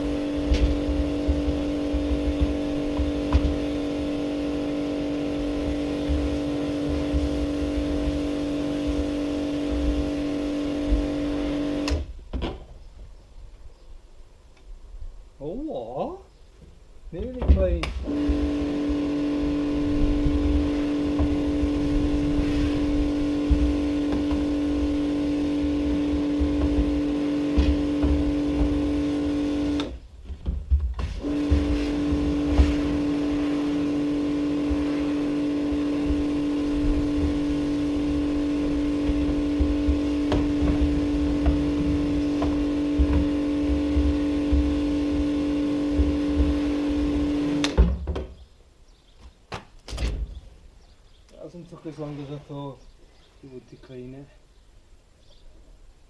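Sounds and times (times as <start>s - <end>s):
water jet spraying in plastic tank: 0.0s - 12.1s, 17.8s - 30.0s, 30.9s - 47.8s
pressure washer humming: 0.0s - 12.2s, 17.8s - 30.4s, 31.0s - 47.9s.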